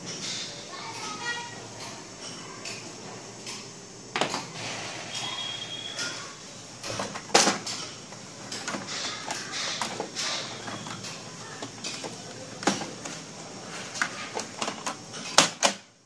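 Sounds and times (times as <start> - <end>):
plastic printer parts clicking and creaking: 6.8 - 15.8.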